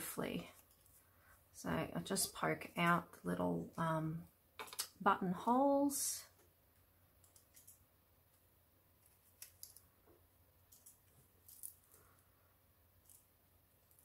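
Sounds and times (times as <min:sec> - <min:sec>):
small clicks and paper pops: 0:09.0 - 0:09.9.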